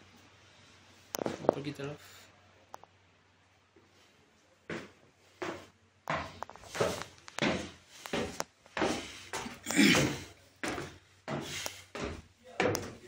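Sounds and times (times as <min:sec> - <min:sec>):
footsteps on wooden stairs: 0:04.7 - 0:13.0.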